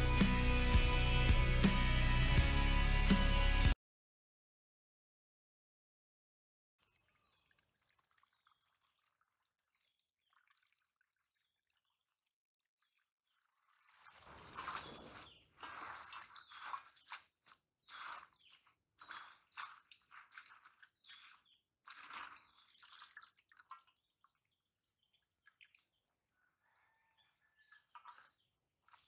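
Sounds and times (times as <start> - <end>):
water pouring into steel basin: 12.8 - 17.3, 19.0 - 25.8
hands swishing leaves in water: 12.8 - 24.0, 27.9 - 29.0.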